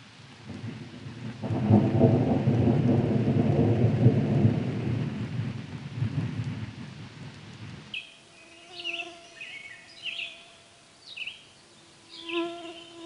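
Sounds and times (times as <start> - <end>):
steady rain: 0.0 - 12.2
thunder rolling: 0.5 - 7.8.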